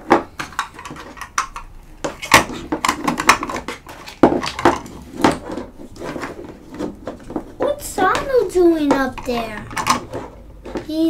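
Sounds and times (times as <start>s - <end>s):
plastic toy pieces clacking: 0.0s - 10.9s.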